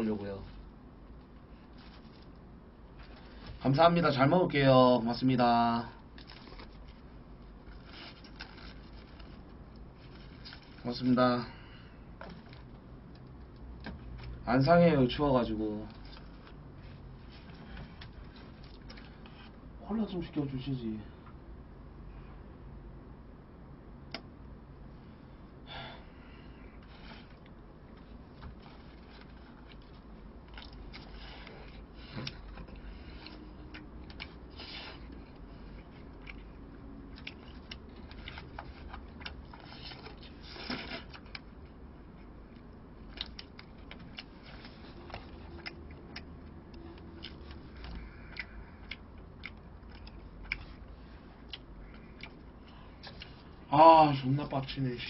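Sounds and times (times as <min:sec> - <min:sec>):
low steady hum: 0:00.0 - 0:55.0
quiet chewing: 0:05.9 - 0:14.4, 0:15.8 - 0:19.7, 0:26.2 - 0:53.7.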